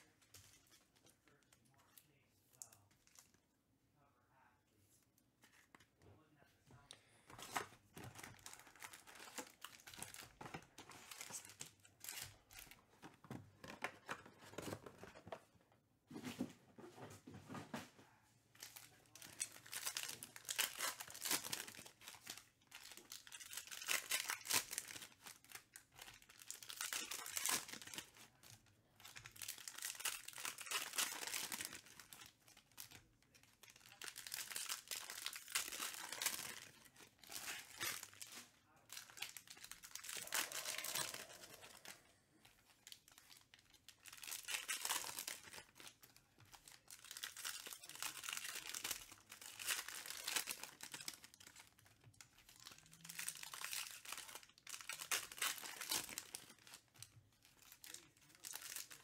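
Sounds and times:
wrappers crackling and rustling: 0:18.6 - 0:59.0.

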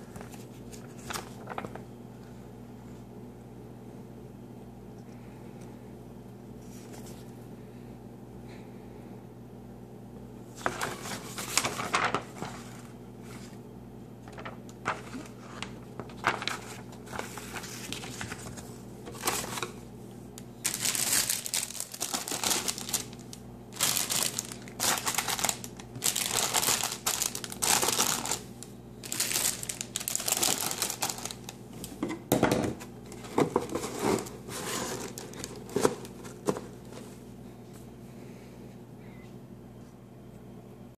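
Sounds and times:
paper and cardboard rustling: 0:00.0 - 0:01.8, 0:10.6 - 0:13.6, 0:14.2 - 0:19.8, 0:20.6 - 0:32.0, 0:33.1 - 0:37.2
steady low hum: 0:00.0 - 0:40.9.

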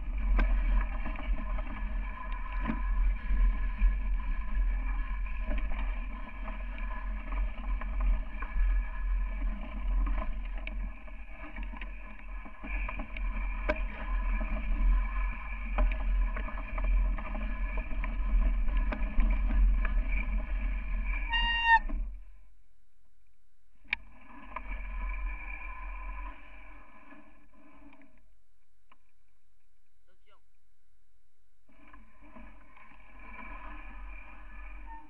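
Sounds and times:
wind rumble on microphone: 0:00.0 - 0:22.2.

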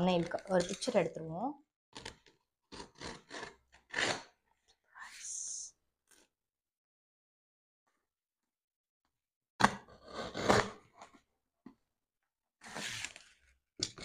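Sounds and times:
tape scraping and tearing: 0:02.0 - 0:04.4.

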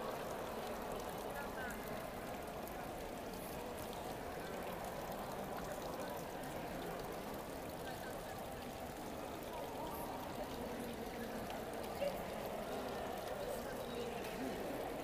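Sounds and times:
crowd murmur: 0:00.0 - 0:15.0.

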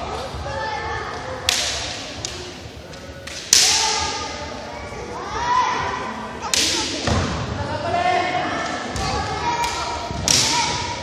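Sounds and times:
bamboo sword strikes cracking: 0:01.5 - 0:02.4, 0:03.2 - 0:04.0.

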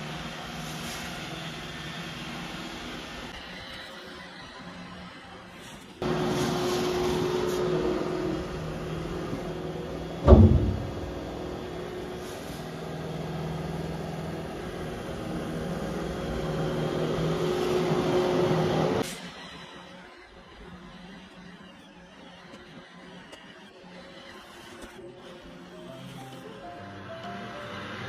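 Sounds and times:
loud knock: 0:10.2 - 0:11.3.

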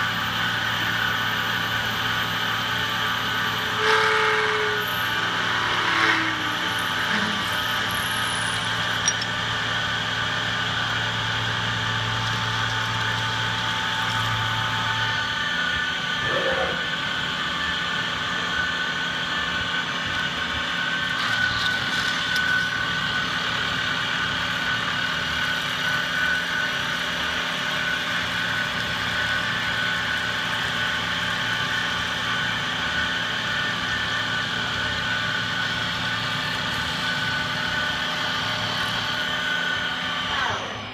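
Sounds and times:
milling machine whine: 0:00.0 - 0:40.9
cutter cutting metal: 0:00.5 - 0:40.9.

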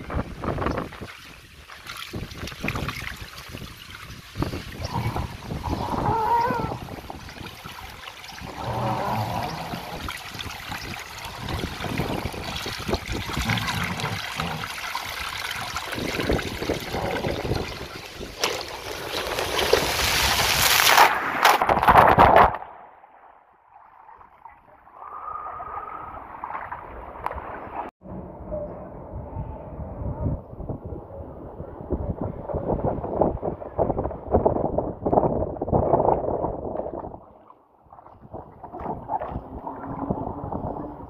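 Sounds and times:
wind noise on microphone: 0:00.0 - 0:18.4, 0:19.6 - 0:22.6, 0:28.0 - 0:41.0
rushing water: 0:00.0 - 0:22.6, 0:35.6 - 0:41.0
faint water in pool: 0:00.0 - 0:41.0.

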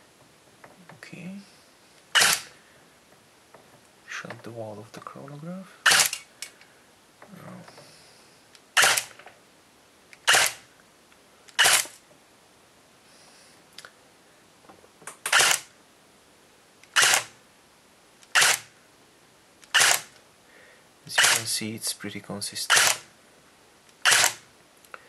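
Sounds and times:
airsoft gun single shots: 0:02.2 - 0:02.5, 0:05.9 - 0:06.2, 0:08.8 - 0:09.2, 0:15.2 - 0:15.7, 0:17.0 - 0:17.3, 0:18.4 - 0:18.7, 0:19.7 - 0:20.1, 0:21.2 - 0:21.4, 0:22.7 - 0:23.0, 0:24.0 - 0:24.4.

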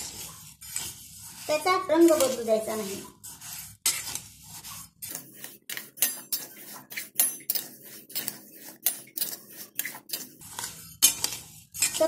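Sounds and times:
spatula scraping rice in pan: 0:00.0 - 0:12.0
spatula clinking against pan: 0:05.1 - 0:10.2.

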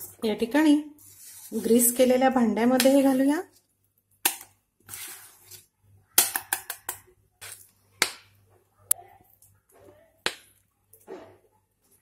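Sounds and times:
utensil scraping steel bowl: 0:01.0 - 0:03.4, 0:04.9 - 0:05.7.

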